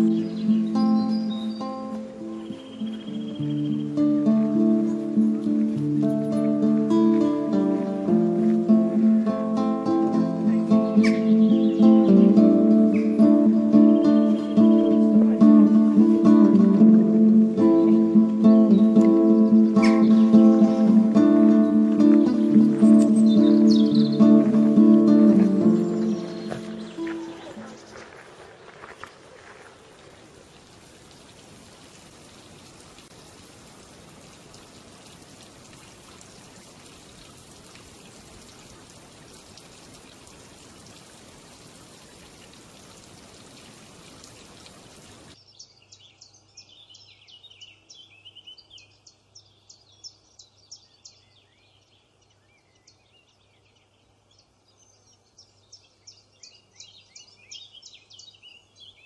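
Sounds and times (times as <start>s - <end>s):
small birds chirping: 0.0s - 33.6s, 43.3s - 59.0s
steady rushing hiss: 0.0s - 45.4s.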